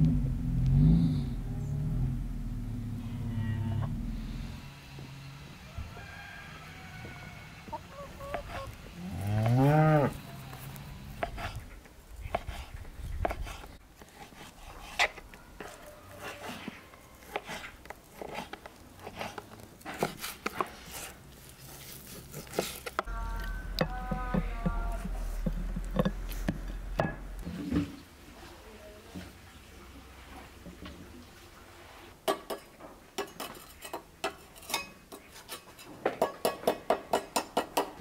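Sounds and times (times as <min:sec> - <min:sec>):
cow mooing: 0:03.0 - 0:04.1, 0:09.0 - 0:10.2, 0:23.1 - 0:27.4.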